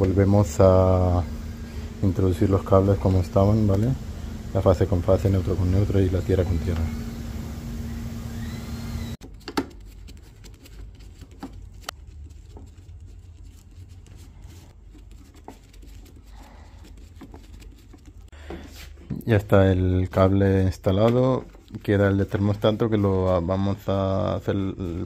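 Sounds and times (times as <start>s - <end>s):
steady hum: 0.0s - 9.2s.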